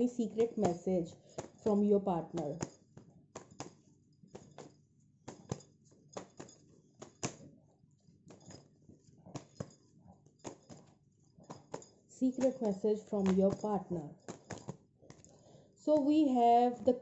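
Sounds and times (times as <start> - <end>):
cards ticking and tapping: 0.0 - 7.5, 8.2 - 16.1.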